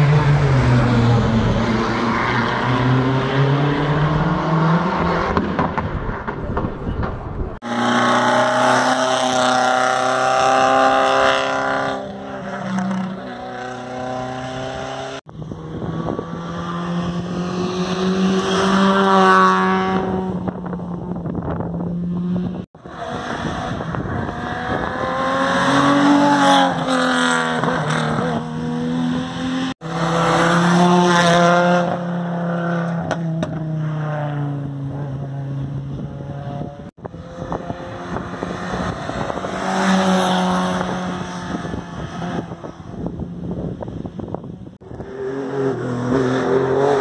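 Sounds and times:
rally car engines revving: 0:00.0 - 0:06.9, 0:07.6 - 0:47.0.

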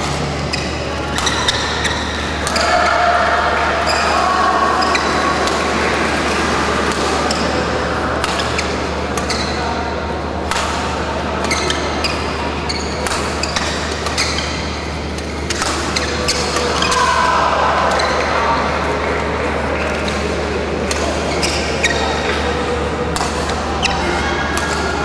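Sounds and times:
shoes squeaking on court: 0:00.0 - 0:02.9, 0:04.8 - 0:05.4, 0:08.3 - 0:09.8, 0:11.4 - 0:17.0, 0:21.3 - 0:22.6
racket hitting shuttlecock: 0:00.0 - 0:04.1, 0:04.8 - 0:17.1, 0:19.9 - 0:25.0.

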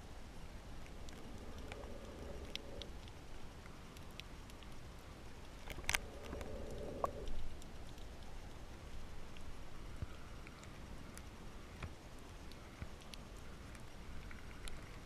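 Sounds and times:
low underwater rumble: 0:00.5 - 0:03.9, 0:05.3 - 0:08.4
sharp clicks and crackles: 0:00.6 - 0:15.0.

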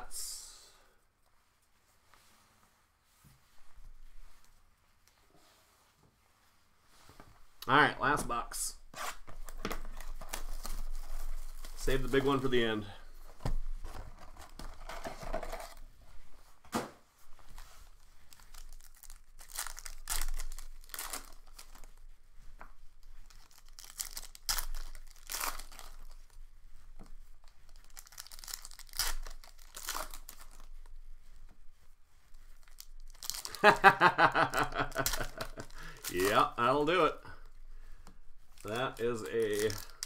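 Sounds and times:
plastic wrapping tearing and crinkling: 0:09.0 - 0:12.5, 0:17.9 - 0:21.9, 0:23.0 - 0:26.4, 0:27.6 - 0:30.7, 0:32.6 - 0:37.6, 0:38.5 - 0:40.0.

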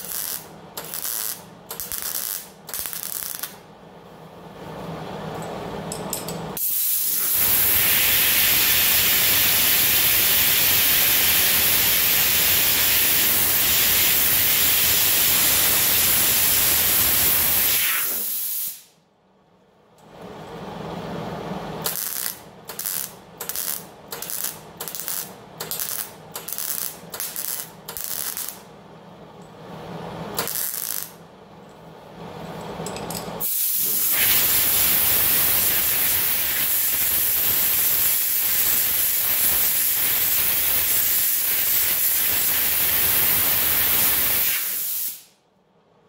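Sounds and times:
welder crackling bursts: 0:00.0 - 0:03.6, 0:06.6 - 0:18.9, 0:21.8 - 0:28.6, 0:30.4 - 0:31.2, 0:33.4 - 0:45.3.

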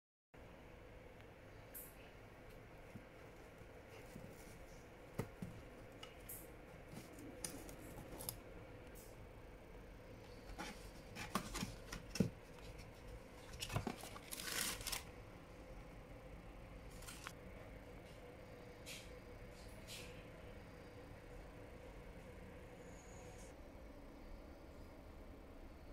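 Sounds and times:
cardboard box tearing: 0:13.8 - 0:15.0.

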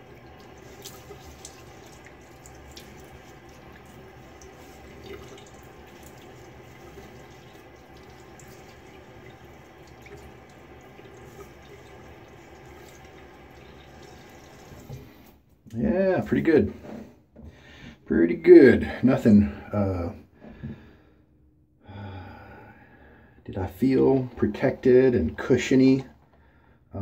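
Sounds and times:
tap water running into sink: 0:00.0 - 0:15.3
water splashing and dripping: 0:00.0 - 0:15.3.

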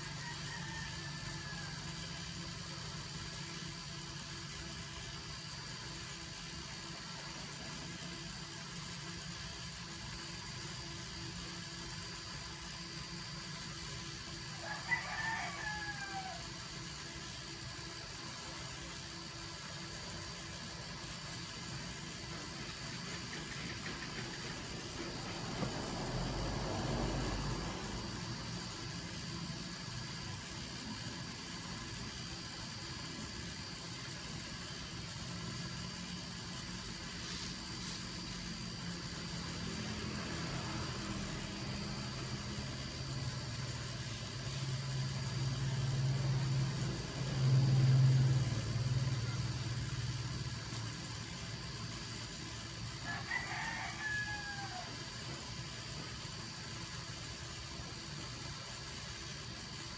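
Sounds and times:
rooster crowing: 0:00.0 - 0:02.5, 0:14.4 - 0:17.0, 0:52.9 - 0:55.4
low engine hum: 0:22.4 - 0:31.8, 0:38.3 - 0:51.8.

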